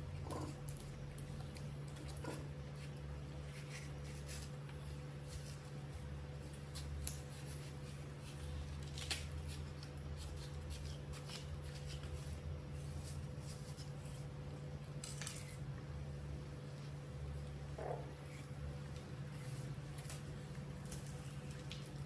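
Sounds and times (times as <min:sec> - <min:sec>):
knife cutting watermelon: 0:00.0 - 0:14.4.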